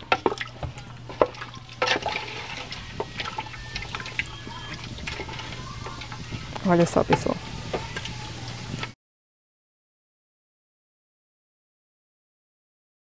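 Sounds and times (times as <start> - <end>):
liquid sloshing: 0.0 - 9.0
wooden spoon stirring broth: 0.0 - 9.0.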